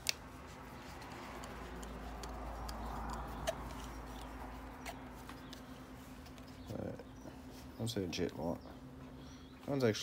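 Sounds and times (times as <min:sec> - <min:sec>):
screwdriver ticks and clicks: 0:01.0 - 0:04.4.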